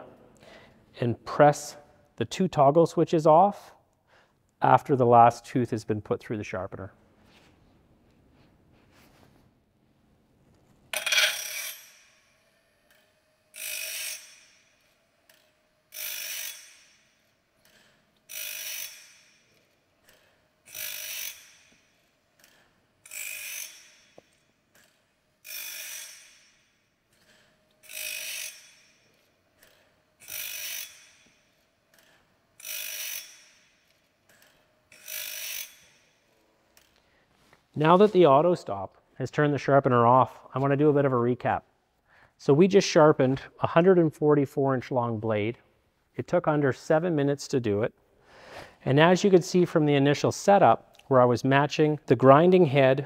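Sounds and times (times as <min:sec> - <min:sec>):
blade sharpener grinding teeth: 0:12.9 - 0:14.6, 0:15.3 - 0:21.8, 0:27.2 - 0:33.7, 0:34.3 - 0:36.0.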